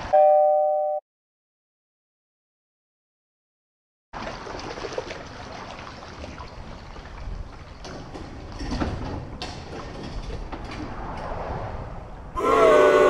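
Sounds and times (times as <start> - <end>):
paddle water splashing and dripping: 4.2 - 8.6
water lapping at plastic hull: 4.2 - 10.5.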